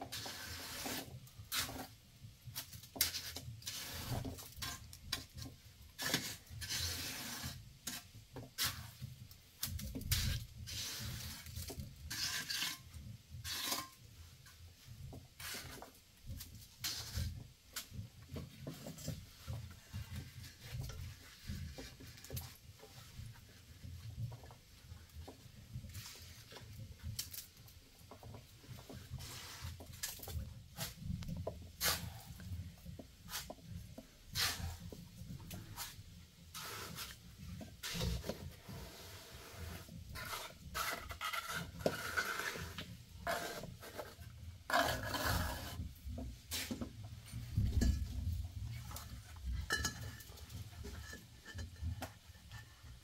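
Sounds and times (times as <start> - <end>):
short scrapes: 34.4 - 34.9.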